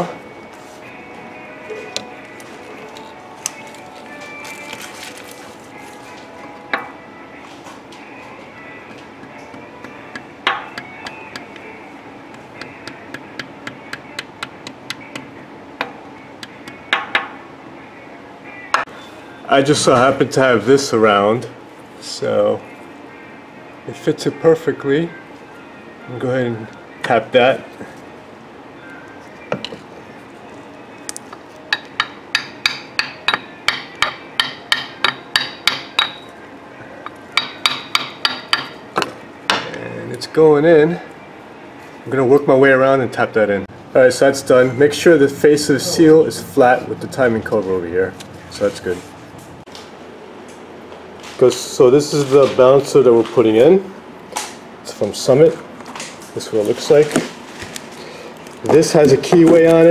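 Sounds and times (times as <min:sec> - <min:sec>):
hammer tapping metal: 0:09.2 - 0:11.7, 0:12.3 - 0:17.4, 0:31.7 - 0:36.3, 0:37.0 - 0:39.8.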